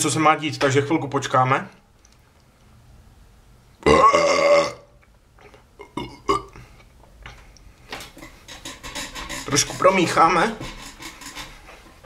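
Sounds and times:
man belching loudly: 3.8 - 5.0, 5.8 - 6.6.

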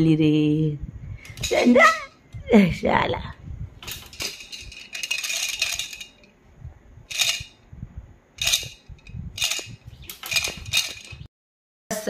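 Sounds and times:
baby rattle shaking: 1.3 - 2.0, 3.8 - 6.3, 7.1 - 7.6, 8.4 - 11.3.

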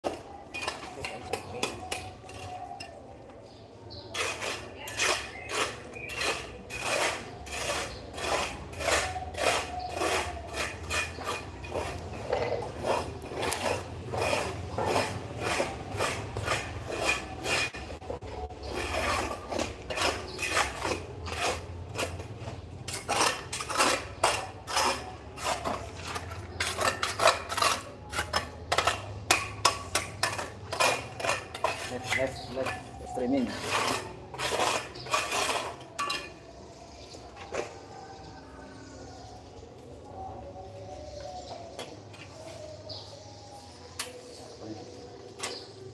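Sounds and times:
hand tool rasping scrapes: 4.0 - 36.5.

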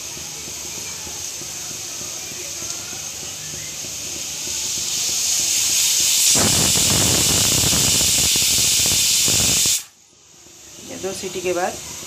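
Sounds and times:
pressure cooker whistle hissing: 2.2 - 10.0.

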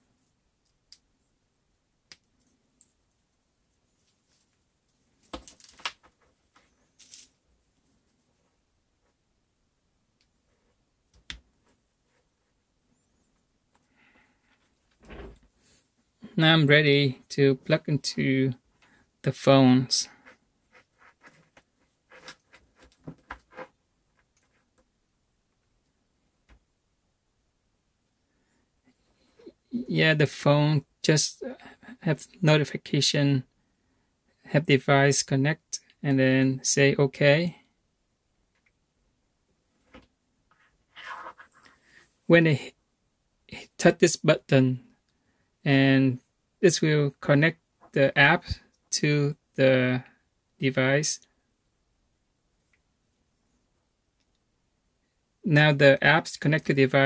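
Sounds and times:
hands handling phone and cable: 5.2 - 7.3, 20.3 - 24.9.

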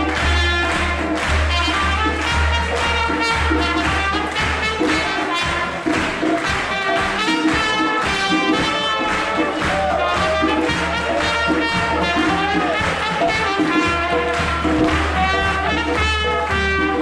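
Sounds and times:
crowd clapping along: 0.0 - 17.0
trumpet playing a lively tune: 0.0 - 17.0.

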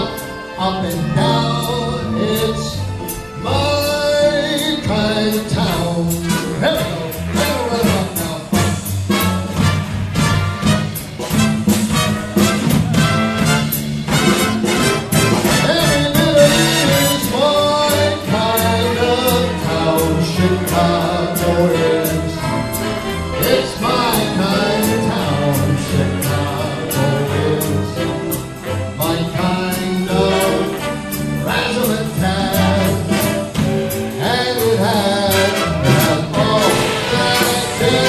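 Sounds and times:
big band playing swing: 0.0 - 38.0.

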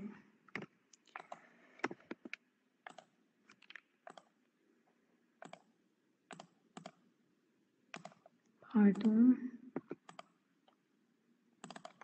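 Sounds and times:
computer keyboard clicks: 0.5 - 4.3, 5.4 - 5.7, 6.3 - 7.0, 7.9 - 8.3, 9.8 - 10.3, 11.6 - 12.0.

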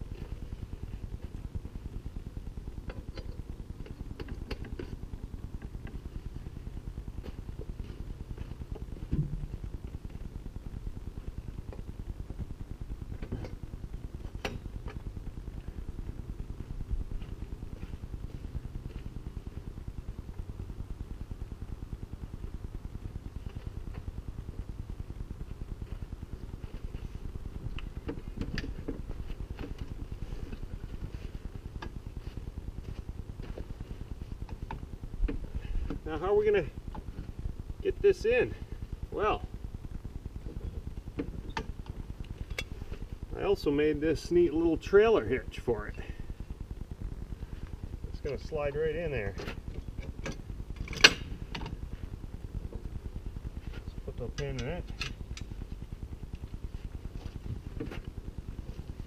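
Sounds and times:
low rumble: 0.0 - 59.0.

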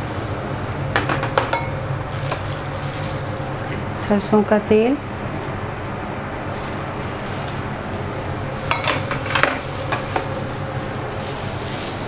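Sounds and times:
kitchenware clinking against bowl: 1.0 - 2.6, 8.6 - 10.3.

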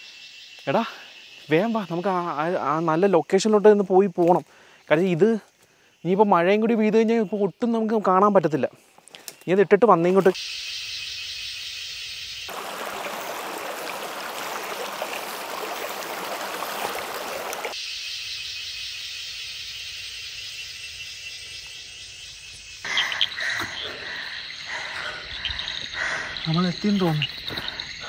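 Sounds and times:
insects buzzing: 0.0 - 28.0
stream water rushing: 12.5 - 17.8.

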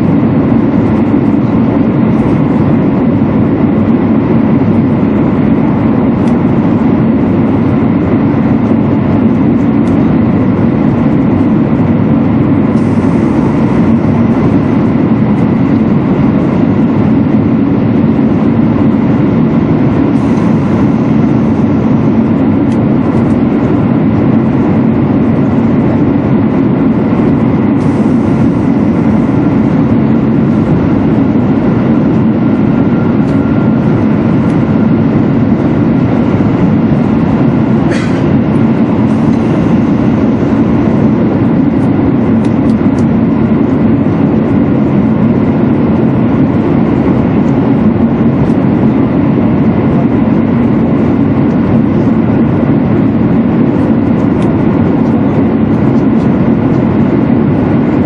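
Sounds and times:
train running noise inside car: 0.0 - 58.0.

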